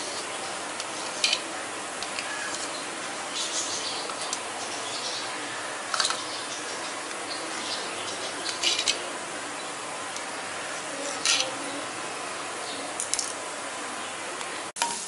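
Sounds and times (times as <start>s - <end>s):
onions sizzling in oil: 14.8s - 15.0s.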